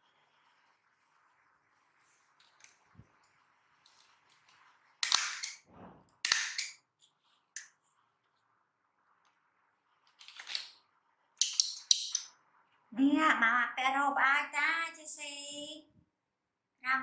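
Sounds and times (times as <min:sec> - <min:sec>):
diaper tape tabs ripping: 0:05.0 - 0:05.6, 0:06.2 - 0:06.8.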